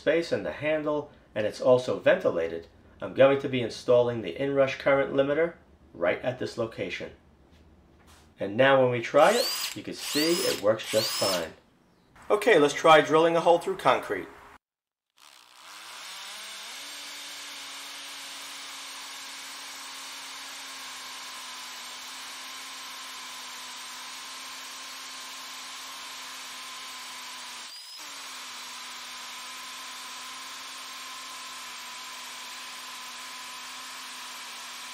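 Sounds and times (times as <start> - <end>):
hammer drill motor hum: 9.2 - 11.6, 15.2 - 34.9.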